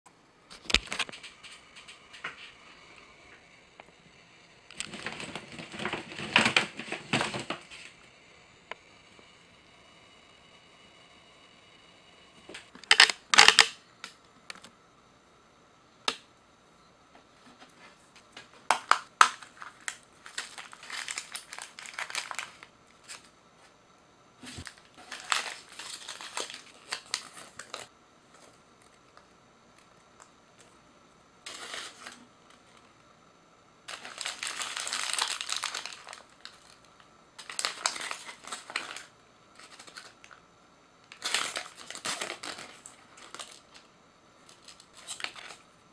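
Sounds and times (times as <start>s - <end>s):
plastic and paper crinkling: 0.5s - 2.9s, 4.7s - 8.0s, 17.5s - 23.3s, 24.4s - 30.8s, 31.5s - 32.9s, 33.9s - 40.4s, 41.1s - 45.7s.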